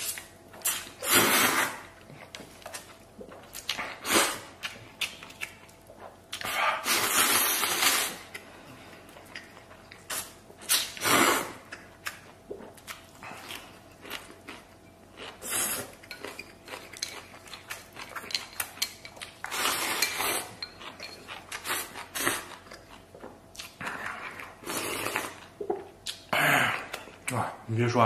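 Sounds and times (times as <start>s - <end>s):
person slurping noodles: 0.6s - 2.0s, 4.0s - 4.6s, 6.4s - 8.2s, 10.1s - 11.7s, 15.4s - 15.9s, 23.8s - 25.4s
chewing: 2.0s - 6.9s, 7.6s - 11.0s, 11.6s - 27.3s.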